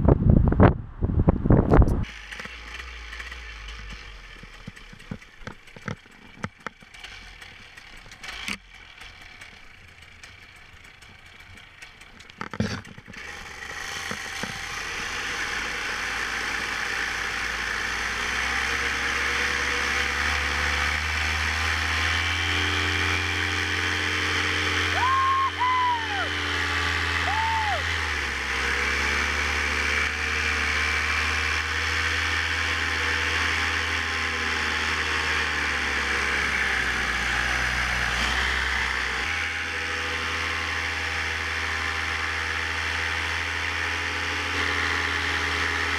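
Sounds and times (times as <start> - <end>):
knocks and clicks of gear: 1.6 - 14.9
two-stroke engine running: 2.0 - 45.9.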